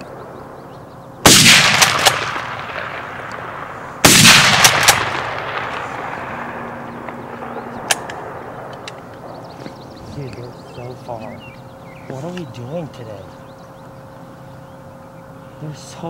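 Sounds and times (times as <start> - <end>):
loud gunshots with echo: 1.2 - 8.7.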